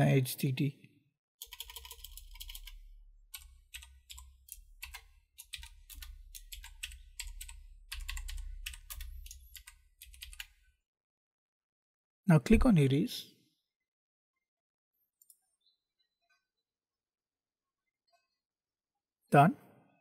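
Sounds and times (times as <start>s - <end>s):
keyboard typing: 1.4s - 10.6s.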